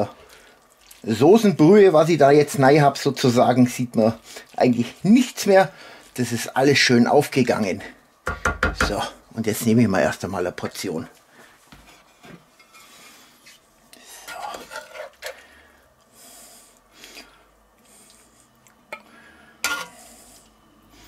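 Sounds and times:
serving spoon scraping in skillet: 11.8 - 15.5, 19.6 - 20.5.

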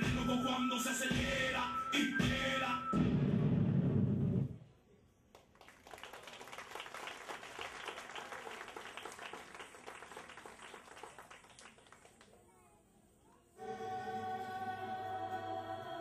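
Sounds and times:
audience applauding: 5.4 - 12.4.

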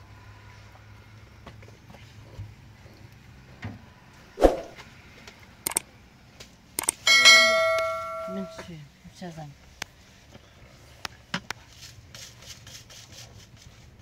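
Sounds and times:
tableware knocks and clicks: 7.1 - 8.6.

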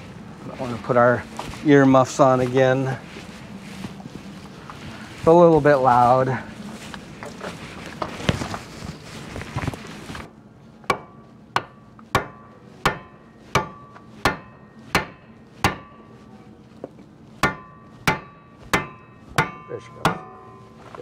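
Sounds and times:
rustling: 0.0 - 21.0
hammer blows with metallic ring: 10.9 - 16.5, 17.4 - 21.0.

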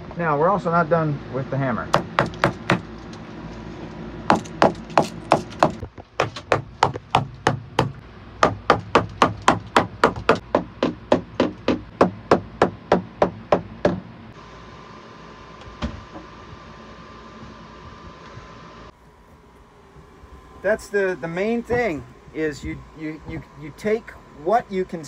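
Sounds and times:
hammer knocking on wooden beams: 2.0 - 2.9, 4.3 - 14.1.

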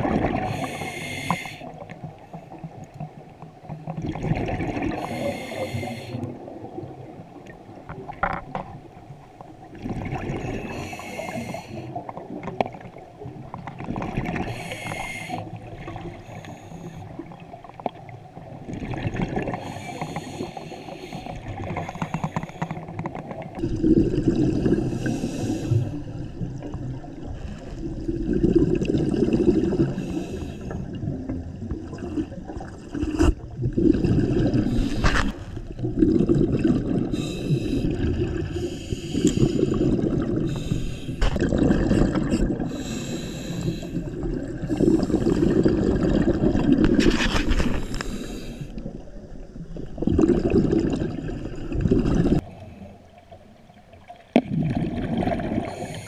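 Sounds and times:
underwater bubbling: 0.0 - 56.0
diver breathing through regulator: 0.4 - 1.8, 4.9 - 6.3, 10.3 - 12.0, 14.4 - 17.1, 19.5 - 22.9, 24.8 - 26.1, 29.7 - 30.9, 34.5 - 35.6, 37.0 - 41.4, 42.0 - 45.9, 47.1 - 48.9, 55.6 - 56.0.

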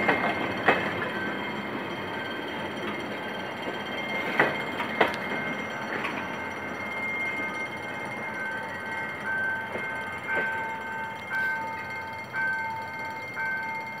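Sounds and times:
level crossing warning tone: 0.0 - 14.0
passenger train running: 0.0 - 14.0.

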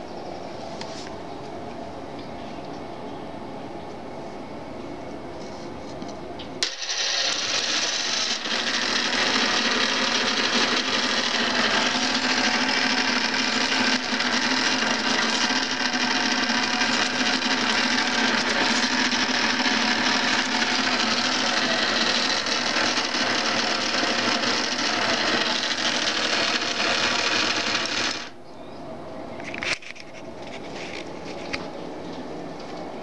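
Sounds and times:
small electric gear motor running: 6.6 - 28.4.

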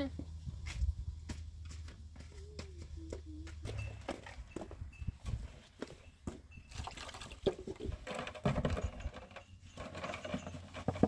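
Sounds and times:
footsteps on dirt: 0.1 - 6.4
plastic jugs knocking and clicking: 6.3 - 11.0.

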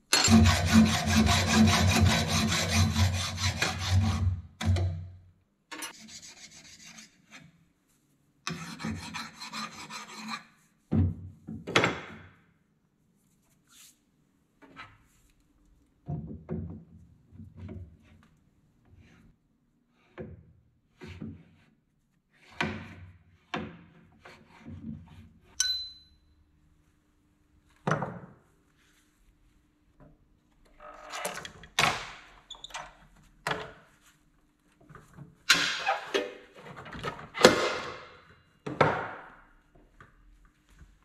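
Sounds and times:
short metallic ring: 25.6 - 26.3.

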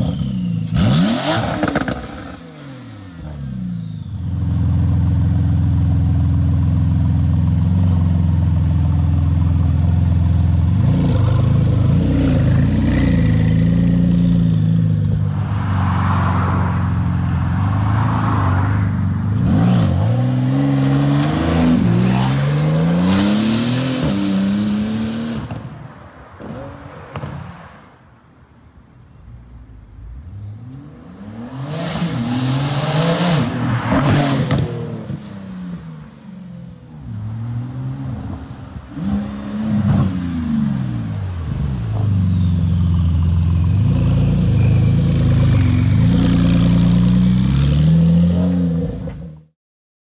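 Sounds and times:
sports car engine revving: 19.4 - 25.6.

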